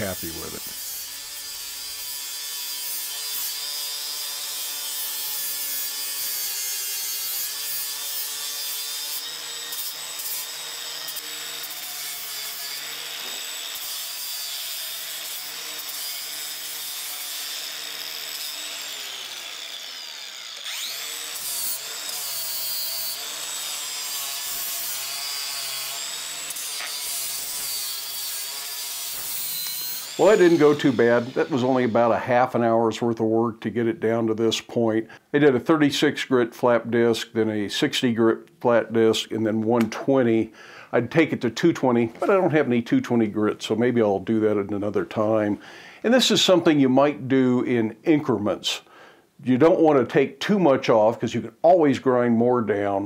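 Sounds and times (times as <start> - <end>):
angle grinder grinding steel: 0.0 - 32.6.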